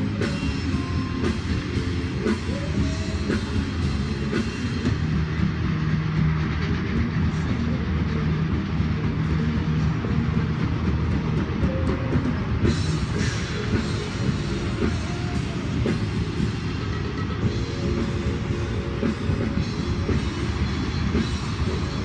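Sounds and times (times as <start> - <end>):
freight train rumbling: 0.0 - 22.0.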